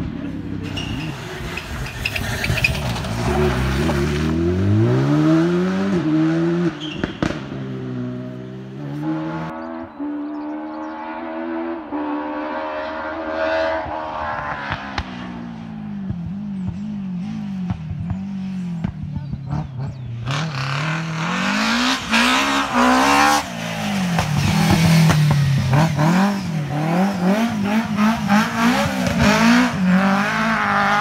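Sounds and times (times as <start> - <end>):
car engine accelerating hard: 1.3 - 31.0
sharp crack: 6.9 - 7.6.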